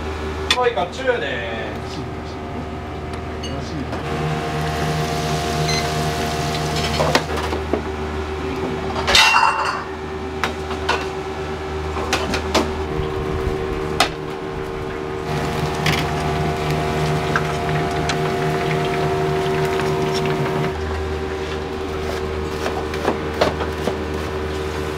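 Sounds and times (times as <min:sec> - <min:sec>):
steady mechanical hum: 0:00.0 - 0:24.9
deep fryer bubbling: 0:04.0 - 0:08.4, 0:11.3 - 0:24.9.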